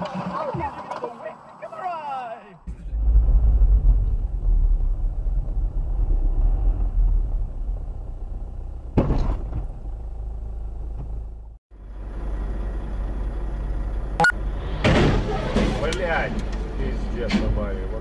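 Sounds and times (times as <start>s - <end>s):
car engine rumble and road noise: 0.0s - 18.0s.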